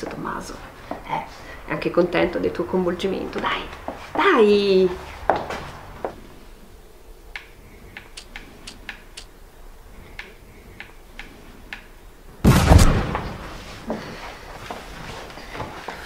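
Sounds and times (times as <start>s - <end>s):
light irregular clicks: 7.3s - 9.3s, 10.1s - 12.0s
video game gunshot: 12.4s - 13.4s.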